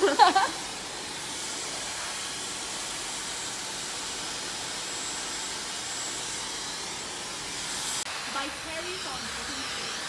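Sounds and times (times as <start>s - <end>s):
steady rushing hiss: 7.4s - 10.0s.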